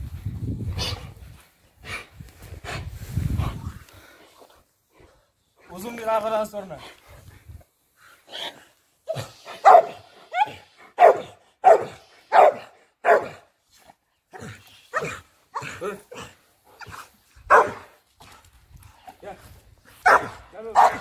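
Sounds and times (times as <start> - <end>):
dog barking: 9.6 - 13.4, 17.5 - 17.9, 20.0 - 21.0.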